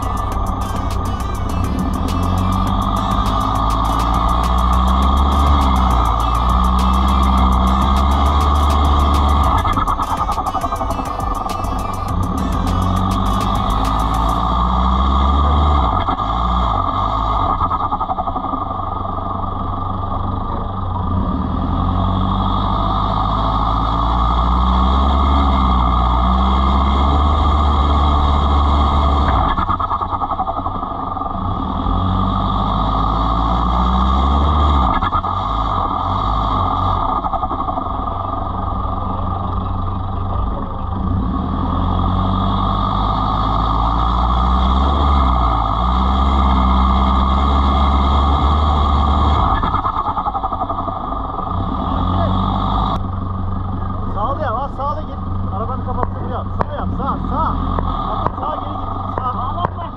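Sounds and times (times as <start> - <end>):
vehicle engine revving while driving: 0.0 - 59.9.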